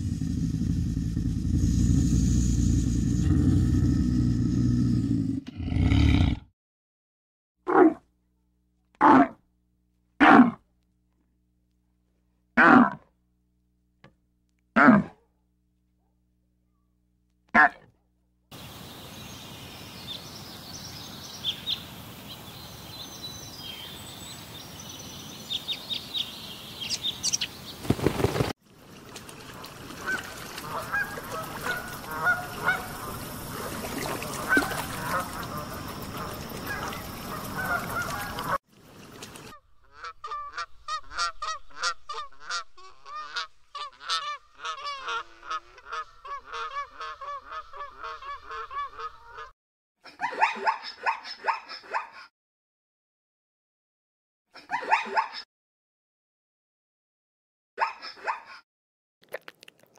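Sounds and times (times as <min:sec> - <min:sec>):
swans honking: 0:29.5 - 0:38.6, 0:39.3 - 0:49.5.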